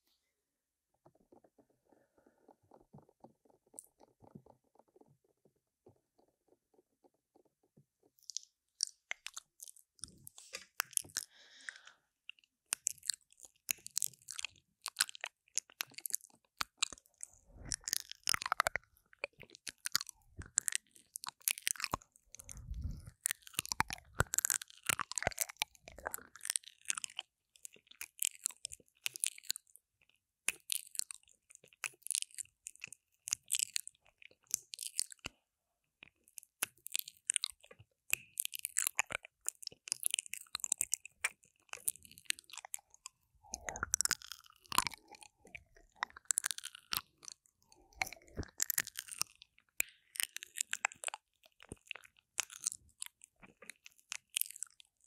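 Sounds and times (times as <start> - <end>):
tongue clicks: 8.2 - 29.7, 36.6 - 55.0
lip smacks: 19.6 - 27.2, 38.6 - 54.8
low rumbles: 22.3 - 23.1
mouth sucking: 22.3 - 24.4.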